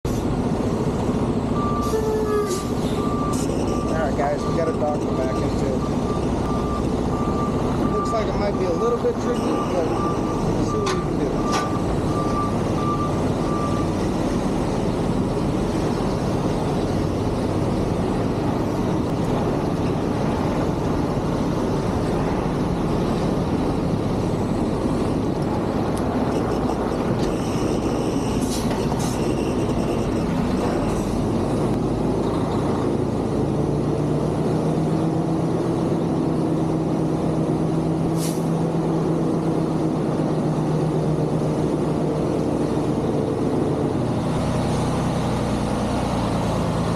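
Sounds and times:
diesel truck engine running: 0.0 - 46.9
reversing beeper: 1.6 - 14.1, 26.2 - 31.2.

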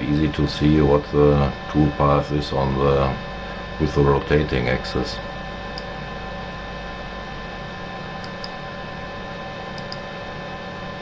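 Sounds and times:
electrical hum: 0.0 - 11.0
faint mouse clicks: 8.2 - 8.6, 9.8 - 10.1.

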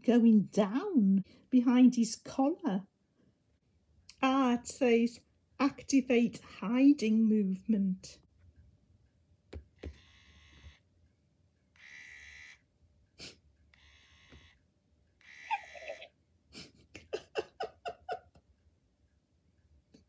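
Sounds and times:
small electric motors whirring: 11.8 - 12.6, 15.2 - 16.0.

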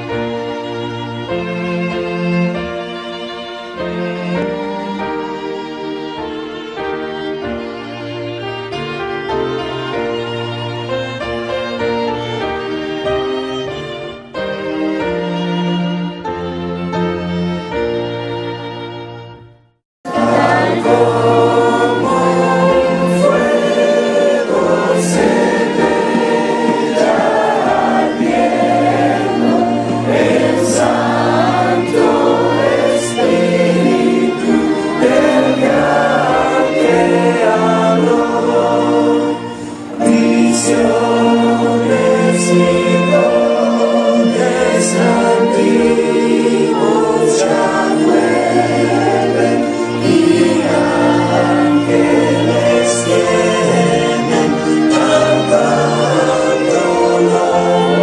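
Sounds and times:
choir singing slow hymn-like song: 20.1 - 58.0.

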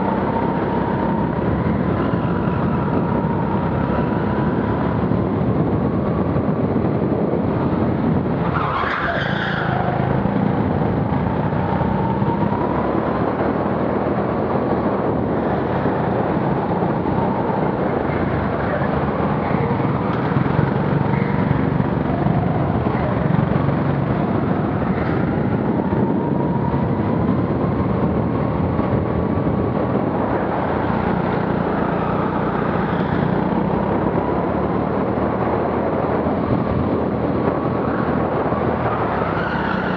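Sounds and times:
go-kart engine running hard: 0.0 - 39.9
tyre squeal: 8.5 - 9.9.

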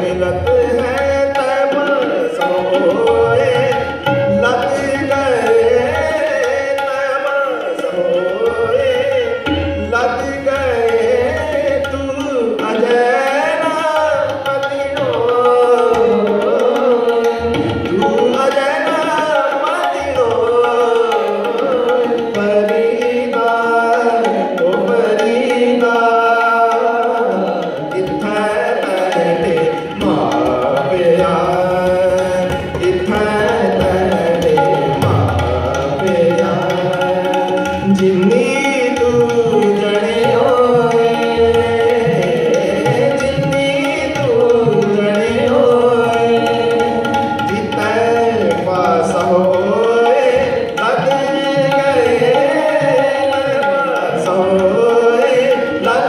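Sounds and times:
tabla rhythm: 0.0 - 56.0.

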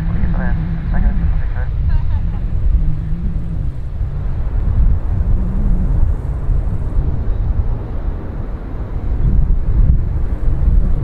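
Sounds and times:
jet engines rumbling: 0.0 - 11.0
wind buffeting microphone: 0.0 - 11.0.

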